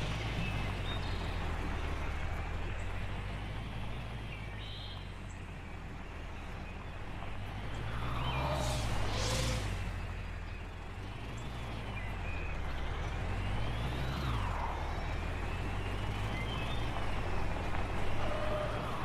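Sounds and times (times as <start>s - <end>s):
cartoon truck engine revving: 7.4s - 16.9s.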